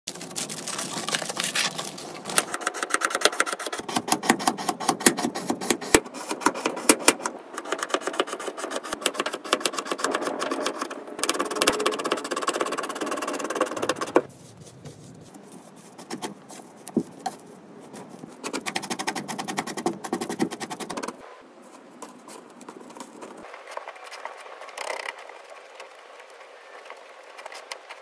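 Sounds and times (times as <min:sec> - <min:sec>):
knife crunching through frozen material: 0:00.1 - 0:02.6
aluminium foil crinkling: 0:00.1 - 0:03.8.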